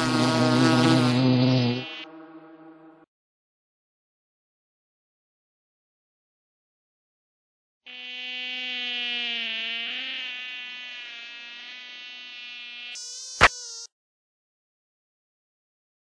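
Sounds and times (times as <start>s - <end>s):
mosquito buzzing: 0.0s - 3.1s, 7.9s - 14.0s.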